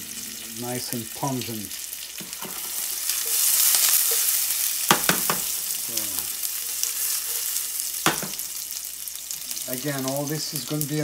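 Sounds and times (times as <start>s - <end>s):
shallots sizzling in a pan: 0.0s - 11.0s
pan knocking on cooktop: 4.9s - 5.6s, 8.0s - 8.4s.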